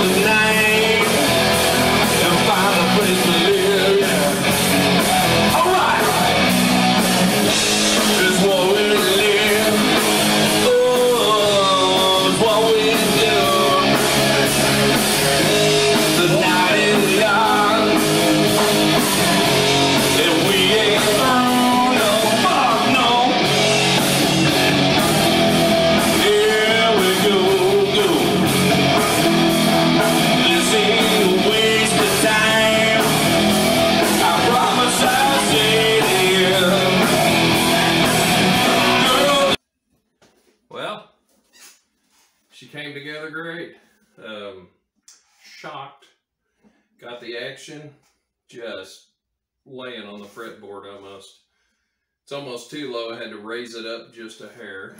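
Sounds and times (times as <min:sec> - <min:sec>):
live rock band playing: 0:00.0 - 0:39.6.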